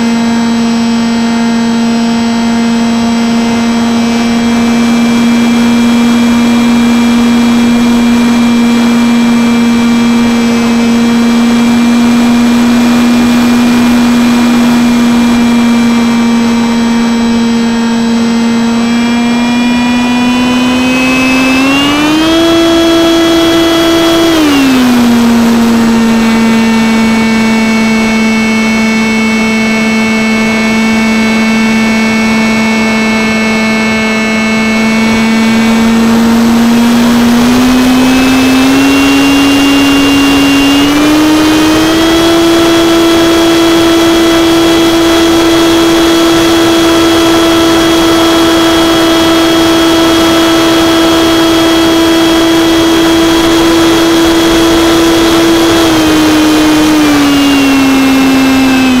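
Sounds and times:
electric motor and propeller whine: 0:00.0 - 0:59.0.

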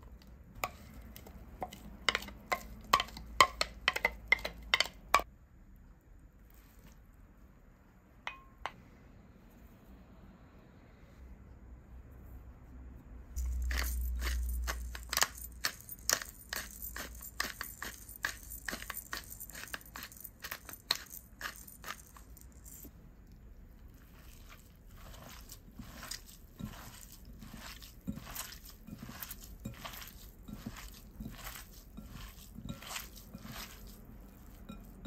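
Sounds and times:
pepper grinder crunching: 0:13.4 - 0:22.9, 0:24.1 - 0:35.0
hands squelching minced meat: 0:23.7 - 0:35.0.

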